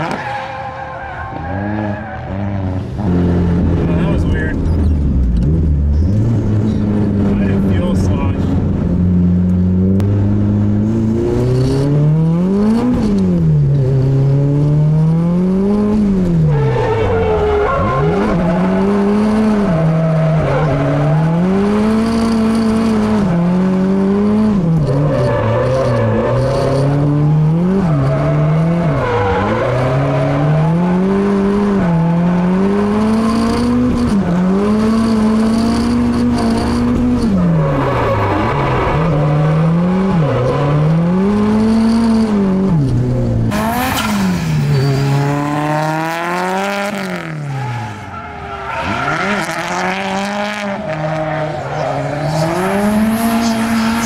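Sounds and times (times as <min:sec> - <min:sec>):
car engine revving: 0:00.0 - 0:54.0
tyre squeal: 0:16.4 - 0:21.5, 0:24.8 - 0:27.0, 0:43.7 - 0:45.3.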